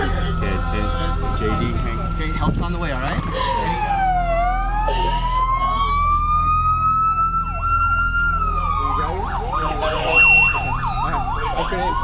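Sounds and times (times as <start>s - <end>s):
low rumble: 0.0s - 11.6s
siren wailing: 3.1s - 12.0s
siren warbling: 3.1s - 12.0s.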